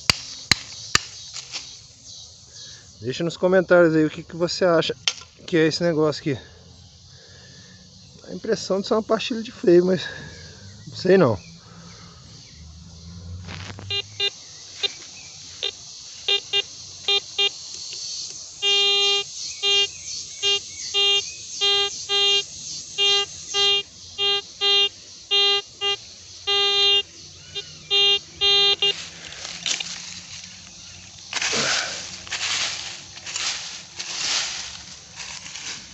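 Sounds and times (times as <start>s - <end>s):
rustle in dry leaves: 0.0s - 3.2s, 11.7s - 24.1s, 27.0s - 35.9s
metal detector beeps: 13.8s - 15.0s, 15.6s - 30.0s.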